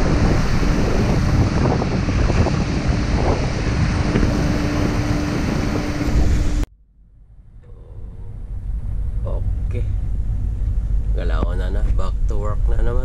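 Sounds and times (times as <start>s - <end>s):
waves rushing along ship hull: 0.0s - 6.7s
wind buffeting microphone: 0.0s - 6.7s
faint steady hum: 0.0s - 13.0s.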